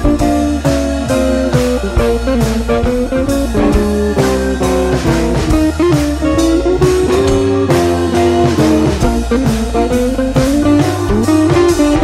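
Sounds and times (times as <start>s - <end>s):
blues electric guitar: 0.0s - 12.0s
steady drum beat: 0.0s - 12.0s.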